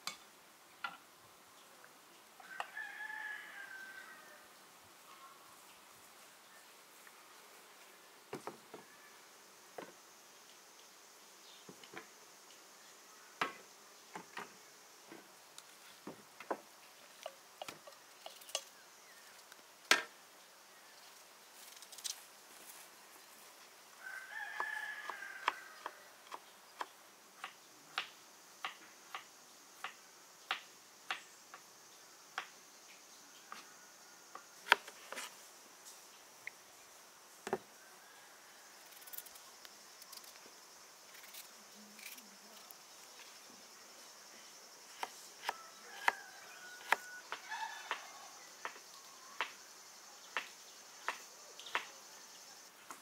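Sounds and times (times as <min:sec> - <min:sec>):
faint hum of insects: 0:00.0 - 0:53.0
rooster crowing: 0:02.4 - 0:04.5, 0:24.0 - 0:26.2, 0:37.7 - 0:39.1, 0:45.4 - 0:48.7.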